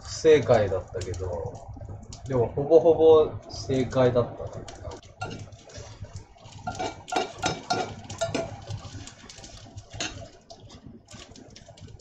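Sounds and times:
metal spoon scraping skillet: 6.6s - 8.9s.

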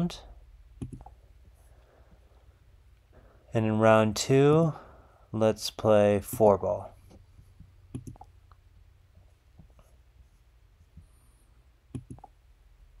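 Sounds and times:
low steady hum: 0.0s - 13.0s
computer mouse clicks: 0.8s - 1.2s, 7.9s - 8.6s, 11.9s - 12.4s.

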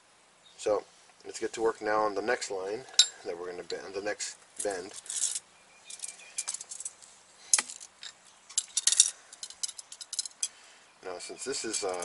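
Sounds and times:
metallic clicks and clinks: 8.5s - 10.6s, 11.7s - 12.0s.

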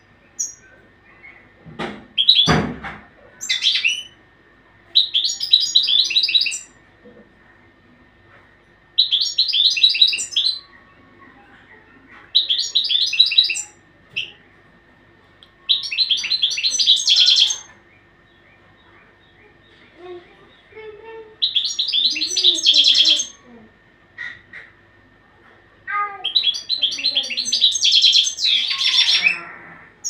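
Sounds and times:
finch twittering song: 2.2s - 2.6s, 5.0s - 6.8s, 9.0s - 10.7s, 12.4s - 14.4s, 15.7s - 19.9s, 21.4s - 23.4s, 26.3s - 29.4s.

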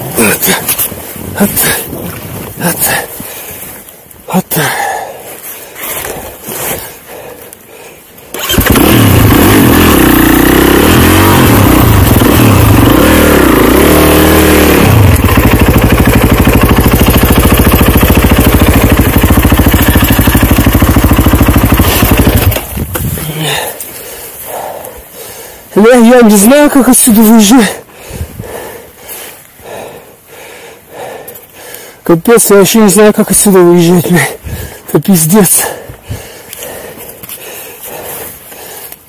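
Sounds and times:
snowbike engine revving hard: 8.3s - 23.6s.

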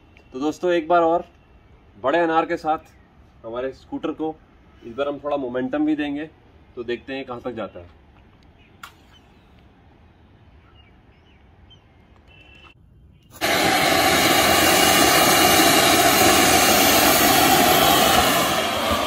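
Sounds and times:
firework fountain hissing: 13.3s - 19.0s.

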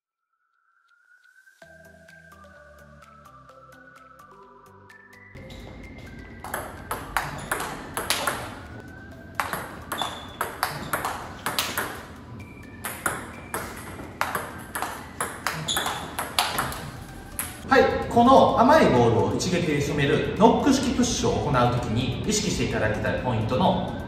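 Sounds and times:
ball bouncing on table: 6.4s - 8.8s, 9.4s - 12.2s, 12.8s - 17.6s
table tennis ball clicking: 6.4s - 8.8s, 9.4s - 17.6s.

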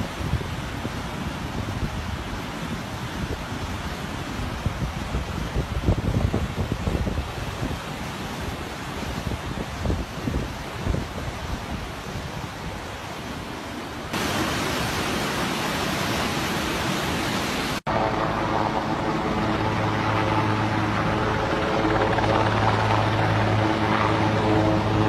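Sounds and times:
floodwater rushing: 0.0s - 25.0s
helicopter droning overhead: 17.9s - 25.0s.

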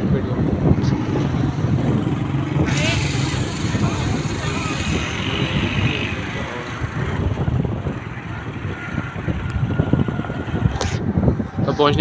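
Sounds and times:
road and traffic rumble: 0.0s - 12.0s
wind buffeting microphone: 0.0s - 12.0s.

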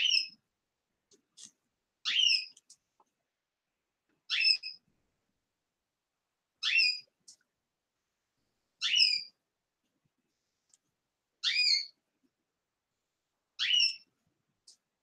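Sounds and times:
cockatiel whistled calls: 4.3s - 4.8s, 6.6s - 7.0s, 8.8s - 9.3s, 11.4s - 11.9s, 13.6s - 14.0s.

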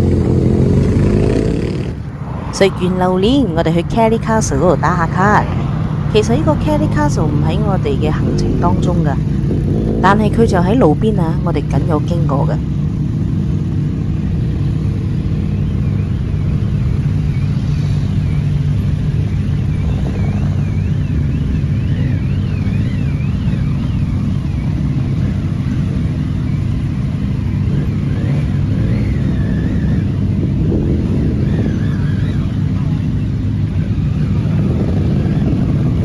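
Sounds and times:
motorcycle engines rumbling: 0.0s - 36.0s
faint wavering high tone: 16.4s - 24.4s.

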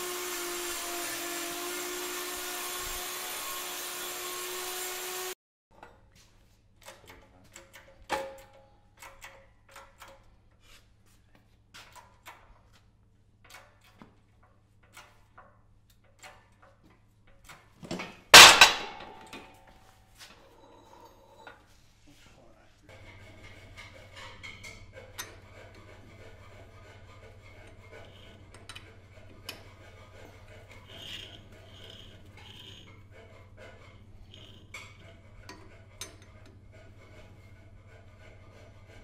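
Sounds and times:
loud metallic clank with ringing: 18.4s - 19.4s.

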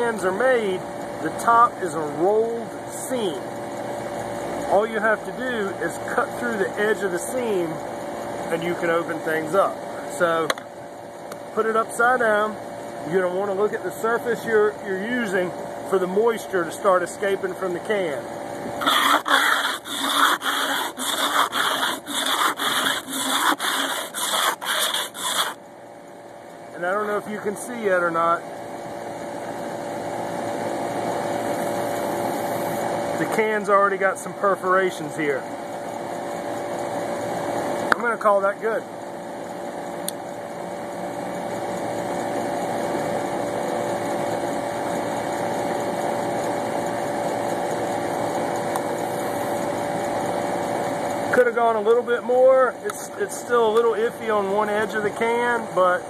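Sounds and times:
air conditioner unit humming: 0.0s - 56.0s
can scraping on concrete: 18.8s - 25.6s.

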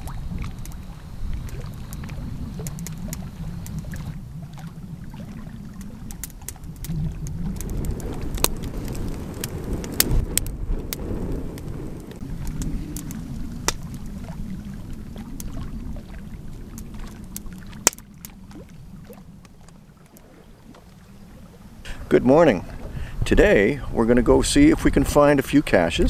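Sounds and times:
sharp clicks and pops: 0.0s - 4.1s, 5.8s - 11.0s, 11.6s - 13.9s, 17.4s - 18.4s.

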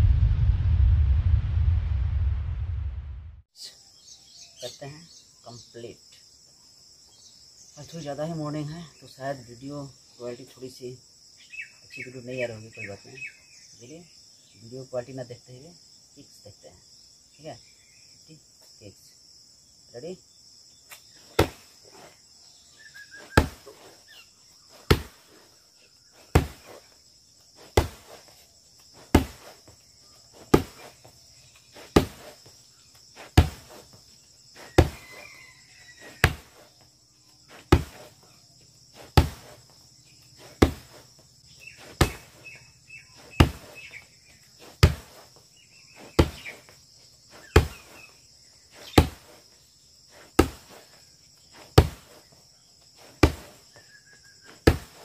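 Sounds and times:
kicks smacking padded target: 21.4s - 21.6s, 23.3s - 23.7s, 24.9s - 25.2s, 26.3s - 26.8s, 27.7s - 28.2s, 29.1s - 29.5s, 30.4s - 30.9s, 31.9s - 32.3s, 33.4s - 33.8s, 34.8s - 35.0s, 36.2s - 36.5s, 37.6s - 38.1s, 39.0s - 39.6s, 40.4s - 41.0s, 41.8s - 42.4s, 43.4s - 43.8s, 44.8s - 45.2s, 46.1s - 46.5s, 47.5s - 47.9s, 49.0s - 49.3s, 50.4s - 50.8s, 51.8s - 52.2s, 53.2s - 53.6s, 54.6s - 55.0s.

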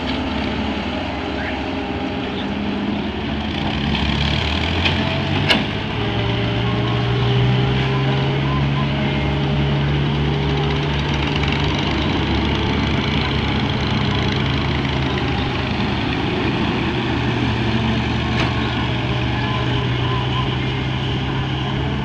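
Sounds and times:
excavator diesel engine droning: 0.0s - 22.0s.

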